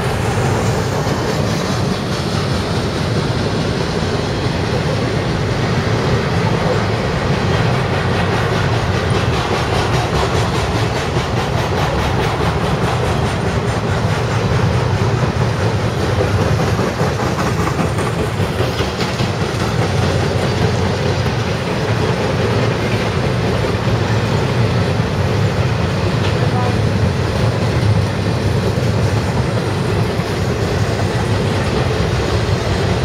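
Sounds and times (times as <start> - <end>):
freight train wheels rumbling on rail: 0.0 - 33.0.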